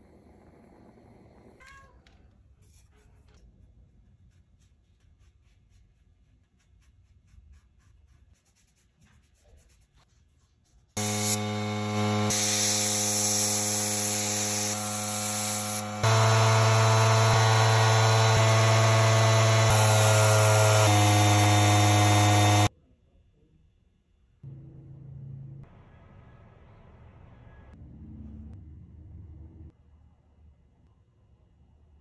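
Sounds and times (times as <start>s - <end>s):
air compressor motor hum: 11.0s - 22.7s.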